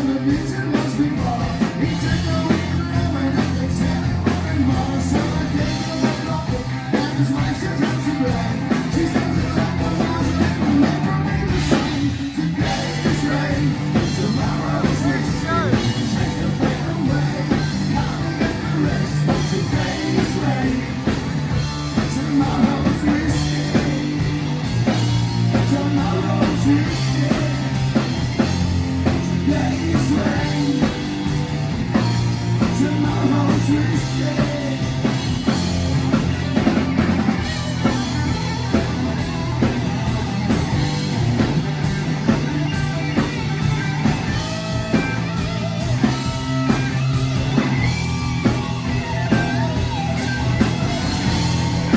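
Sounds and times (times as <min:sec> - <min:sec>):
drum kit beat: 0:00.0 - 0:51.9
electric bass: 0:00.0 - 0:51.9
electric guitars: 0:00.0 - 0:51.9.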